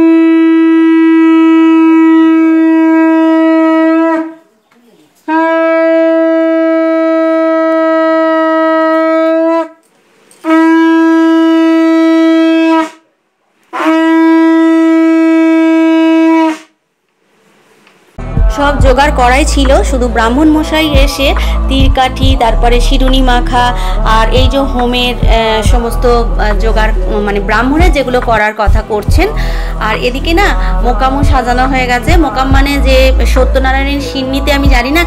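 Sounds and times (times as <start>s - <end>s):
conch shell blasts: 0.0s - 4.4s, 5.3s - 13.1s, 13.7s - 16.8s
person breathing: 21.4s - 21.7s, 23.7s - 24.1s, 29.3s - 29.8s, 30.5s - 30.8s.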